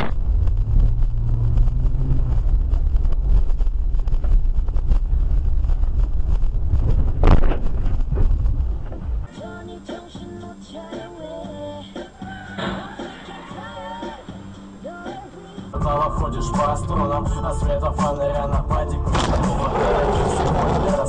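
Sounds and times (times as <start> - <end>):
car rumbling on the road: 0.0 - 9.3, 15.8 - 21.0.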